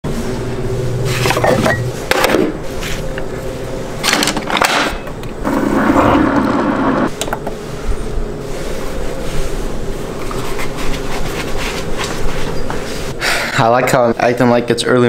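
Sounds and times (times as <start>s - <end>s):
coffee brewer humming: 5.1s - 7.6s.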